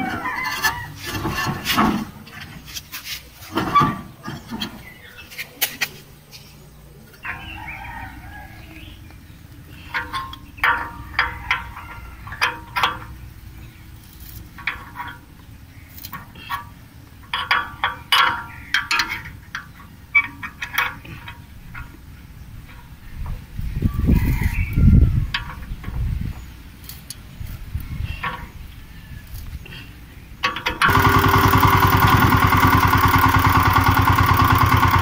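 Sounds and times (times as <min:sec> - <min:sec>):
chickens clucking: 0:00.0 - 0:02.0.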